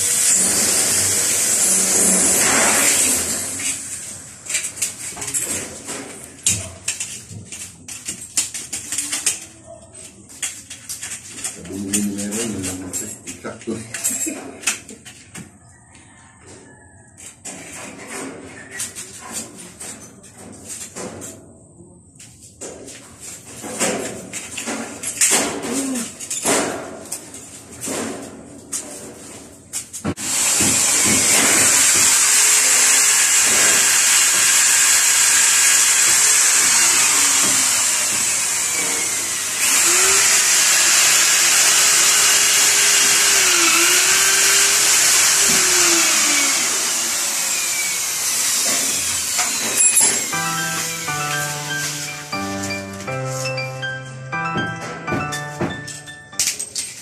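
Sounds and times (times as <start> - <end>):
electric drill drilling concrete: 0.0 - 4.8, 30.2 - 53.2.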